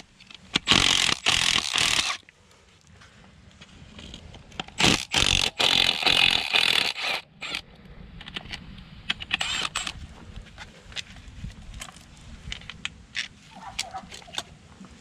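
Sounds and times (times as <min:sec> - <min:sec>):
power tool running on bolt: 0:00.6 - 0:02.2, 0:04.8 - 0:07.6.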